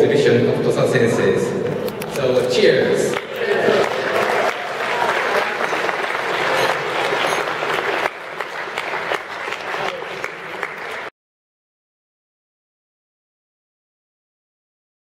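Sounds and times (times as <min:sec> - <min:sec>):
audience applauding: 0:03.1 - 0:11.1.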